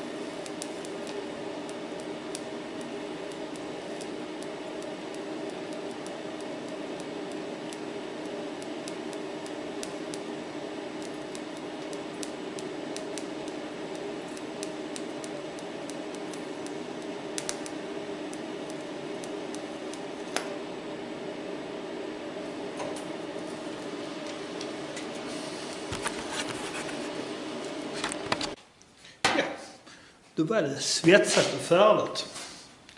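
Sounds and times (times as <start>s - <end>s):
welder arc crackling: 0.0s - 28.9s
steady hum: 0.0s - 32.0s.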